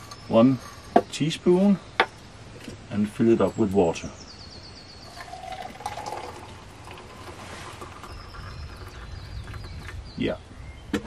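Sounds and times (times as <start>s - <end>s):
water pouring into cup: 5.0s - 9.2s.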